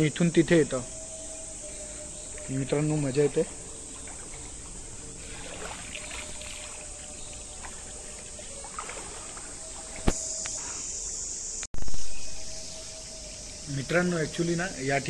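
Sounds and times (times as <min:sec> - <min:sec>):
crickets chirring: 0:00.0 - 0:15.0
water sloshing: 0:00.9 - 0:10.3.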